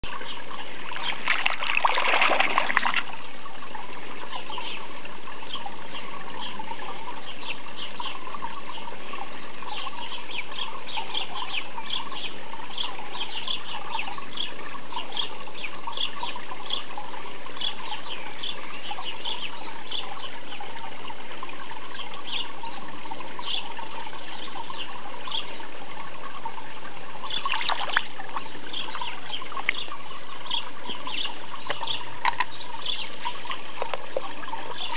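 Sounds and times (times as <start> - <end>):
steady water noise: 0.0 - 34.9
fish splashing in water: 0.8 - 3.2, 27.4 - 28.4.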